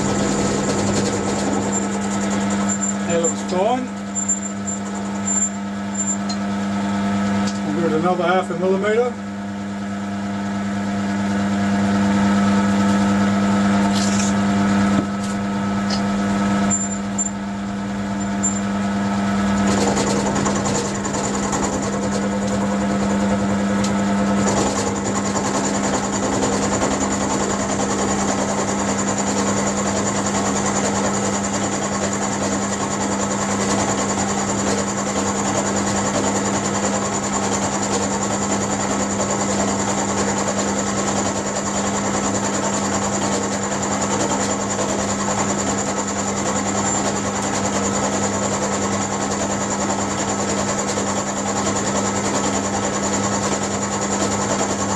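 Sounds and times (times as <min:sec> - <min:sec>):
end mill cutting steel: 0:00.0 - 0:06.4
milling machine motor hum: 0:00.0 - 0:54.9.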